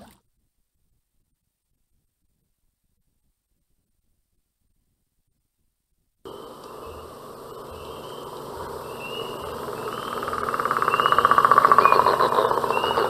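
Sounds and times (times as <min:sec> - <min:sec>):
frog rising chirps: 0:06.3 - 0:13.0
frogs pulsing trill: 0:06.3 - 0:13.0.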